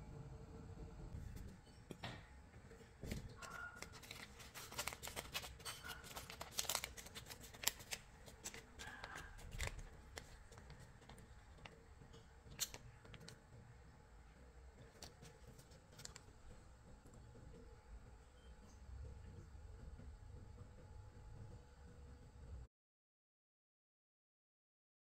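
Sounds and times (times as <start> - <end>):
paper liner crinkling and tearing: 3.0 - 11.8, 14.9 - 16.3.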